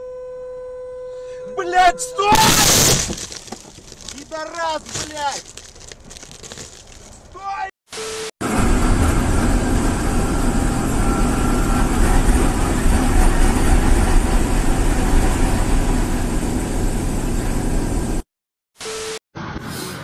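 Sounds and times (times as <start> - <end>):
heavy truck engine droning: 8.4 - 18.2.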